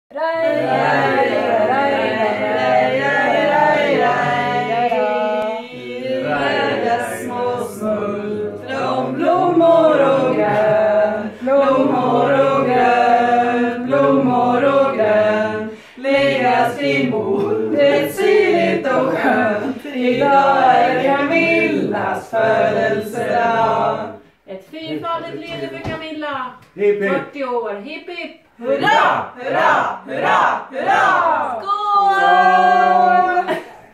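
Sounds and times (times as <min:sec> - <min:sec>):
group singing birthday song: 0:00.1 - 0:27.3, 0:28.3 - 0:33.9.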